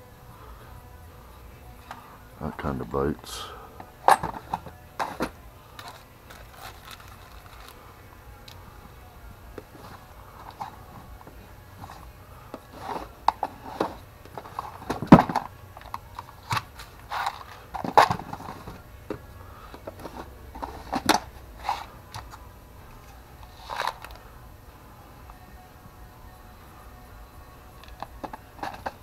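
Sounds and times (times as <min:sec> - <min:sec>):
metal washers and bolts clinking: 0:04.0 - 0:07.8.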